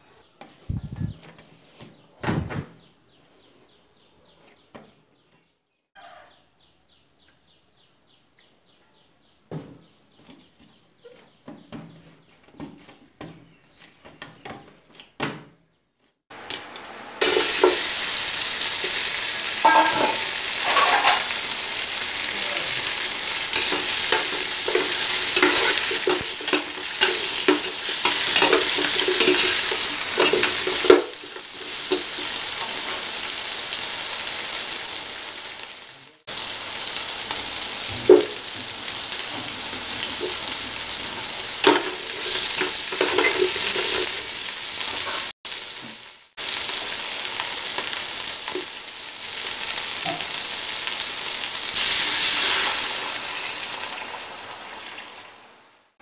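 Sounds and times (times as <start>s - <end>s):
food sizzling in a pot: 16.3s - 55.8s
metal ladle scraping a pot: 19.6s - 21.4s, 23.5s - 32.2s, 41.6s - 44.3s.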